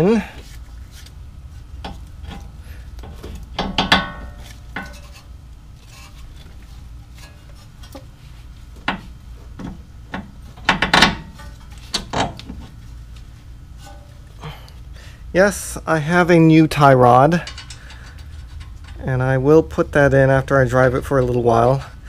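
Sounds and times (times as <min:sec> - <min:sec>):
metal tools clinking and tapping: 0:01.8 - 0:05.3, 0:17.3 - 0:19.1.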